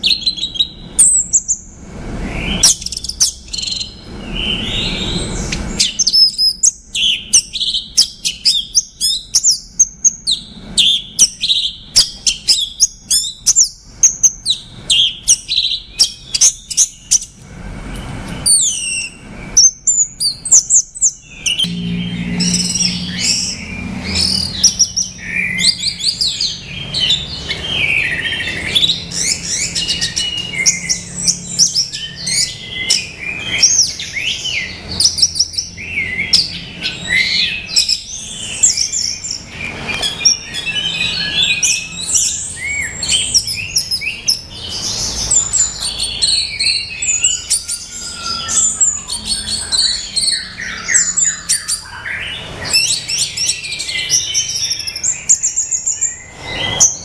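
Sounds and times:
thrush singing whistled phrases: 0:02.2 - 0:17.4, 0:18.4 - 0:57.0
low hum: 0:21.6 - 0:26.8.

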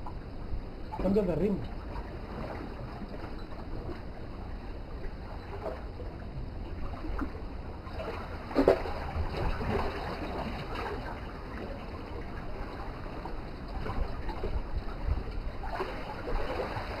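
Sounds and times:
wind rumble on microphone: 0:00.0 - 0:17.0
waves splashing against rocks: 0:06.8 - 0:17.0.

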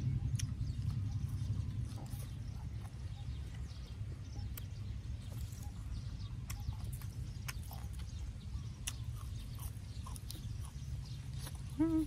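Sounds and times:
wind rumble on microphone: 0:00.0 - 0:06.4
crisp vegetables snapping: 0:08.8 - 0:12.0.

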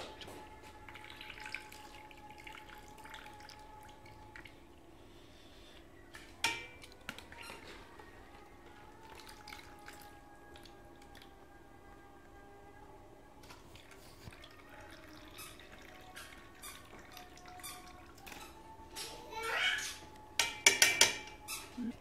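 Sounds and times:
faint steady hum: 0:00.0 - 0:22.0
spoon clinking on pot: 0:06.4 - 0:06.9, 0:20.4 - 0:21.4
water dripping and splashing: 0:13.4 - 0:18.6.

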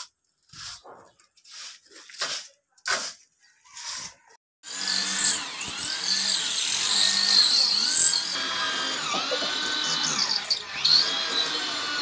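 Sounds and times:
electric drill boring into concrete: 0:04.6 - 0:12.0.

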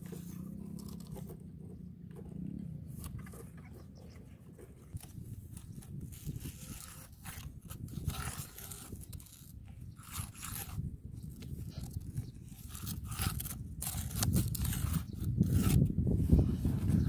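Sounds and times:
crunching of dirt and grass: 0:00.0 - 0:17.0
stick scraping dry soil: 0:00.0 - 0:17.0.

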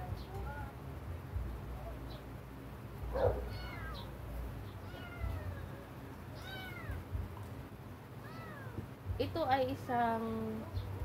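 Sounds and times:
kitten mewing: 0:03.2 - 0:04.1.

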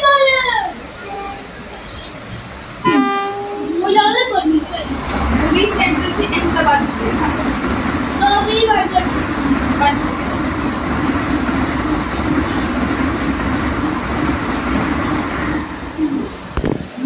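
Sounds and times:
train rushing past: 0:03.6 - 0:17.0.

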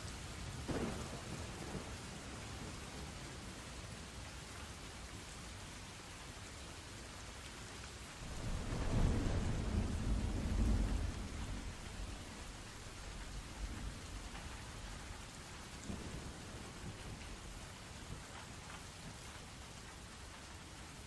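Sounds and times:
steady rain: 0:00.0 - 0:21.0
thunder rumbling: 0:00.6 - 0:03.5, 0:08.2 - 0:17.6.

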